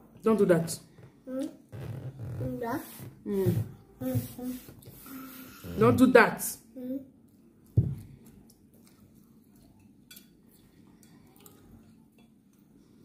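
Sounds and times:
quiet chewing: 7.2s - 13.0s.

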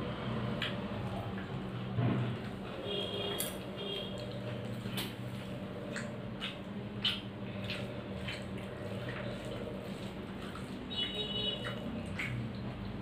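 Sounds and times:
mouth chewing: 3.3s - 13.0s.

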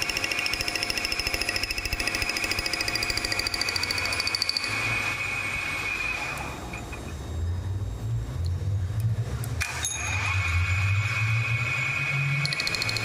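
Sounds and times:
metal lathe cutting steel: 10.1s - 13.0s.

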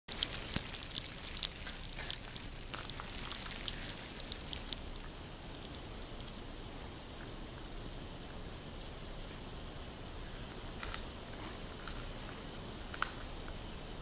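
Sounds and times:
sleet pattering: 0.1s - 6.4s.

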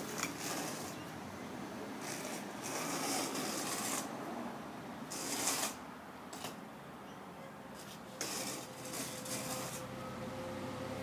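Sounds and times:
straightedge scraping sand: 0.0s - 1.1s, 2.0s - 4.2s, 5.1s - 6.6s, 7.8s - 9.9s.

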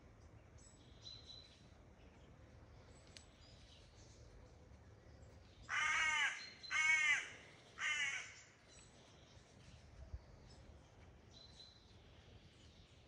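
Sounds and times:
bird giving harsh calls: 5.7s - 8.4s.

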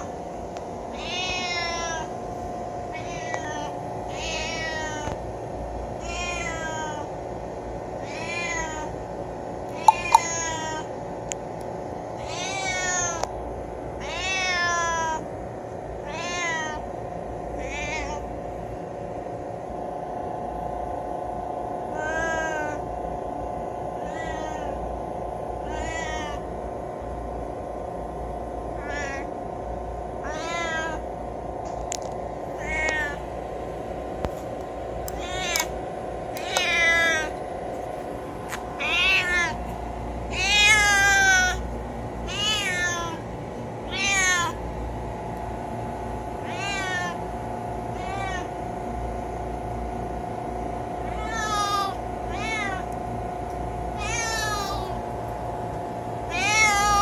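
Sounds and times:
steady hum: 0.0s - 57.0s
cat meowing: 1.0s - 2.1s, 2.9s - 5.1s, 6.0s - 7.1s, 8.0s - 8.9s, 9.8s - 10.9s, 12.2s - 13.2s, 14.0s - 15.2s, 16.0s - 16.8s, 17.6s - 18.2s, 22.0s - 22.8s, 24.0s - 24.8s, 25.6s - 26.4s, 28.8s - 29.3s, 30.2s - 31.0s, 32.6s - 33.2s, 35.1s - 35.7s, 36.4s - 37.4s, 38.8s - 39.6s, 40.3s - 41.6s, 42.3s - 43.2s, 43.9s - 44.6s, 46.4s - 47.2s, 48.0s - 48.5s, 51.1s - 52.9s, 54.0s - 55.0s, 56.3s - 57.0s.

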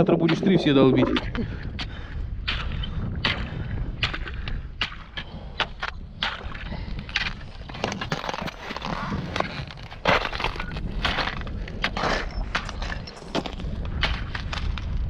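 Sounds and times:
broken ice crunching: 4.0s - 15.0s.

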